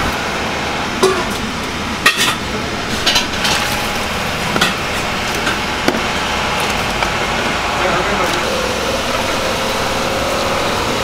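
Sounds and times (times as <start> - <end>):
utensils clinking against pot: 2.0 - 3.7.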